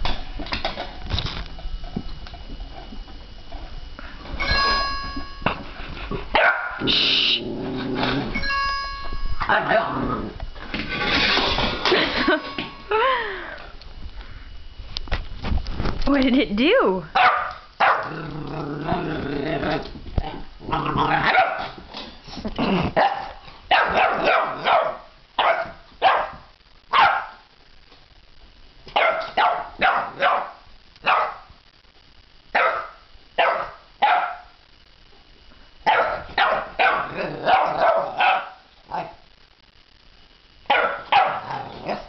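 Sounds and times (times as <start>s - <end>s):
puppy barking: 6.4s - 6.8s, 17.2s - 18.1s, 21.2s - 21.8s, 23.0s - 27.4s, 28.9s - 31.5s, 32.5s - 34.5s, 35.8s - 39.2s, 40.7s - 42.0s
puppy growling: 6.8s - 8.4s, 9.4s - 10.4s, 17.9s - 21.4s, 36.9s - 39.2s, 41.3s - 42.0s.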